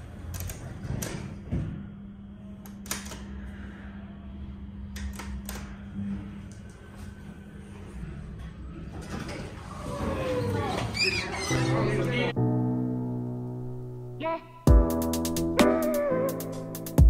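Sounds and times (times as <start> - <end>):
steady low hum: 0.0 - 9.1
elevator buttons clicking: 2.6 - 3.3, 5.0 - 5.8.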